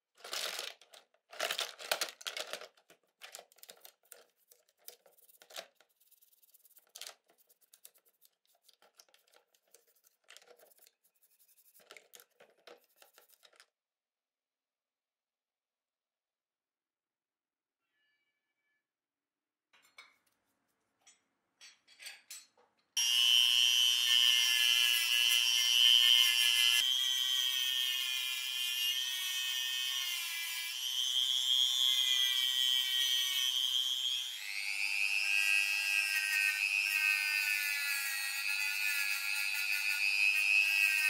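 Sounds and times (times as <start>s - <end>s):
faint taps and scrapes: 3.6s - 13.7s.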